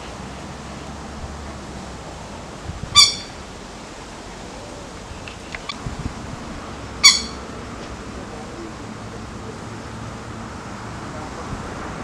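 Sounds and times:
bird calls: 0:02.9 - 0:03.4, 0:04.5 - 0:05.8, 0:07.0 - 0:07.5.

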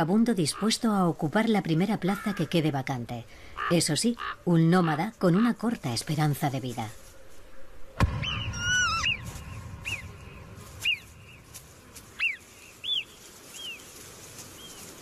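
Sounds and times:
high whistled animal calls: 0:08.2 - 0:10.2, 0:10.8 - 0:11.1, 0:12.2 - 0:13.8.

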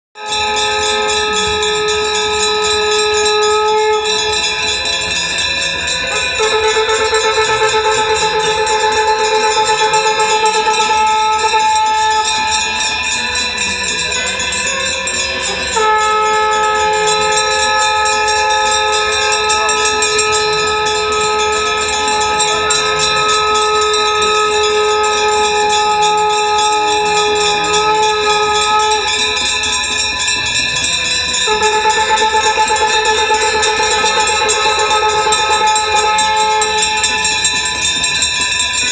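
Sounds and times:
conch shells blown: 0:00.2 - 0:38.9.

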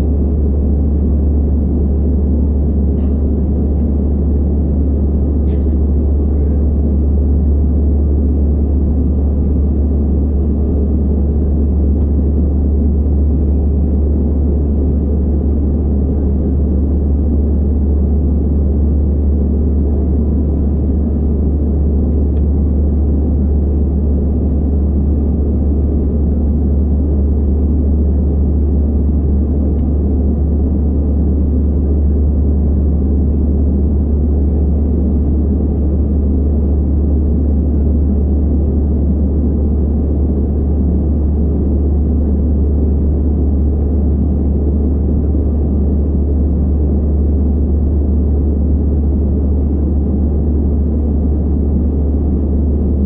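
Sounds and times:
jet engine cabin drone: 0:00.0 - 0:53.0.

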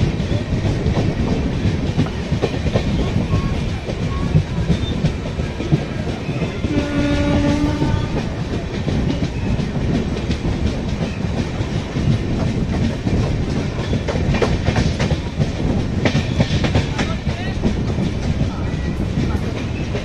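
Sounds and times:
train rumbling on rails: 0:00.0 - 0:20.0
wheels clicking over rail joints: 0:00.0 - 0:20.0
locomotive horn blast: 0:06.7 - 0:08.3.

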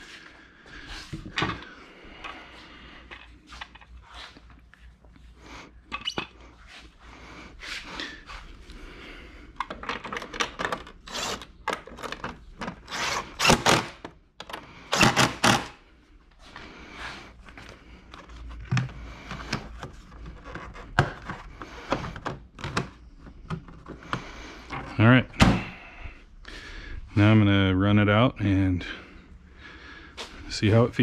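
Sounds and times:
cordless drill-driver running screws: 0:11.1 - 0:11.5, 0:12.9 - 0:14.0, 0:15.0 - 0:15.7.

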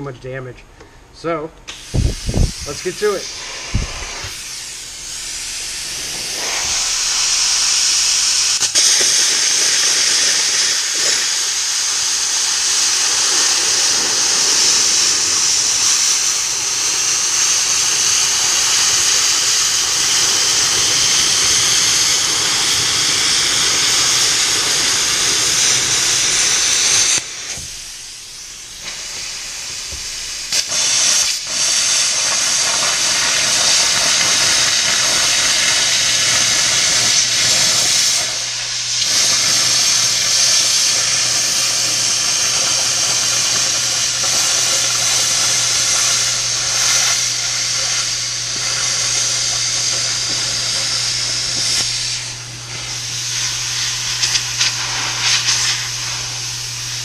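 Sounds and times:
plasma cutter hissing: 0:01.7 - 0:57.0.

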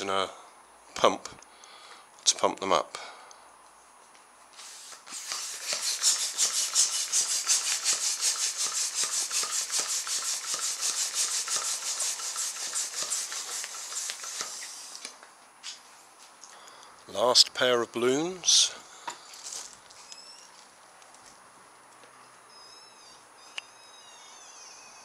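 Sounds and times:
balloon pump hissing: 0:04.6 - 0:15.2.

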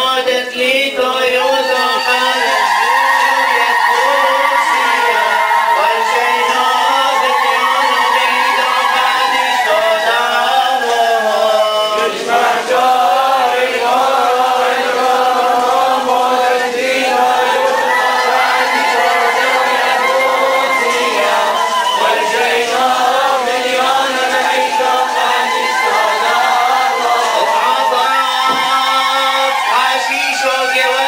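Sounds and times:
men chanting a hymn: 0:00.0 - 0:31.0.

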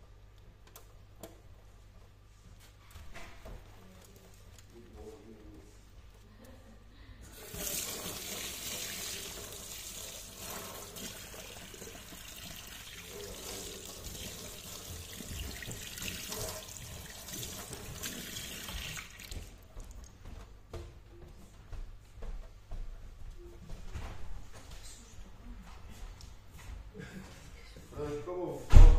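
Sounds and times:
water running into steel sink: 0:07.3 - 0:19.5.

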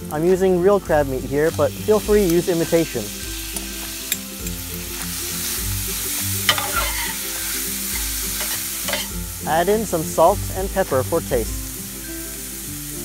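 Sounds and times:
food sizzling in a frying pan: 0:00.0 - 0:13.0
metal spatula clicking on pan: 0:06.5 - 0:07.2, 0:08.4 - 0:09.1.

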